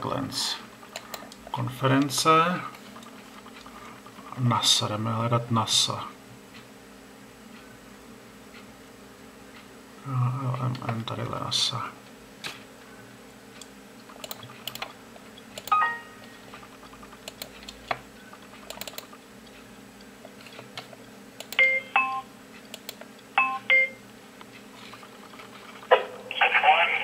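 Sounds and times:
computer mouse clicking: 0:00.8 - 0:01.4, 0:13.6 - 0:15.8, 0:16.5 - 0:19.6, 0:20.2 - 0:21.7, 0:22.6 - 0:23.3.

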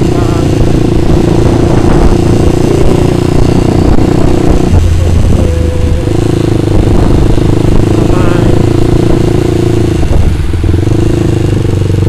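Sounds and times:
motorcycle engine running: 0:00.0 - 0:12.0.

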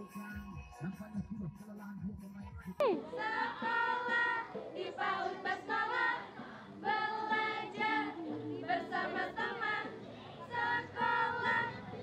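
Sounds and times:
children and women singing: 0:02.8 - 0:12.0.

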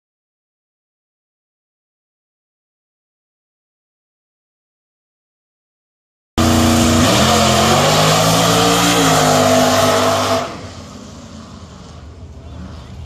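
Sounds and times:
race car engine accelerating: 0:06.4 - 0:13.0.

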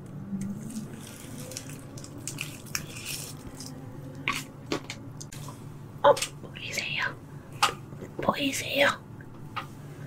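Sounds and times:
wet food squishes: 0:00.4 - 0:05.6.

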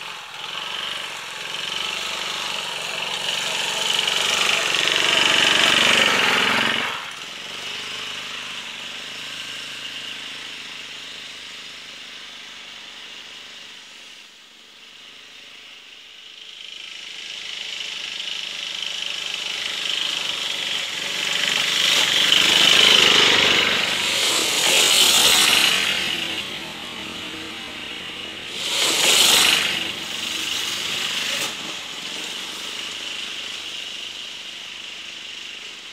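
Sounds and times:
scooter engine passing: 0:00.0 - 0:12.1, 0:16.6 - 0:35.9.

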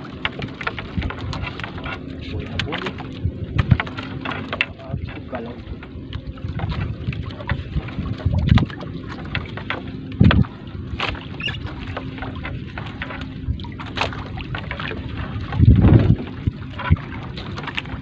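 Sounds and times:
light knocks against hull: 0:00.0 - 0:18.0
wind buffeting microphone: 0:00.0 - 0:18.0.

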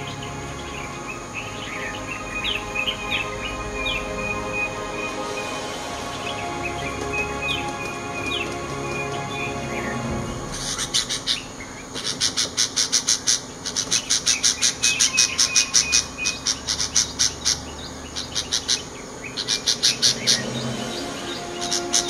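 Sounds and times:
bird chirping rapidly: 0:10.6 - 0:20.8.

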